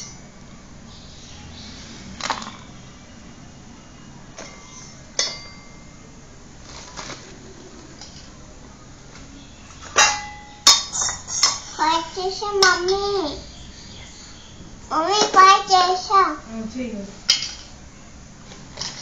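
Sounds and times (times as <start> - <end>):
metal pot and spoons clinking: 4.4 - 5.9, 10.0 - 11.7, 17.3 - 17.8
child's voice: 11.3 - 13.5, 14.9 - 16.5.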